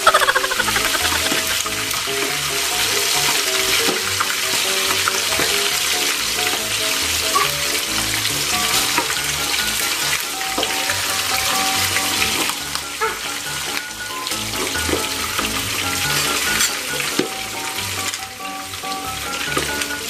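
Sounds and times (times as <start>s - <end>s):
deep-frying in hot oil sizzle: 0.0s - 20.0s
metal tongs in a wok: 16.4s - 17.1s.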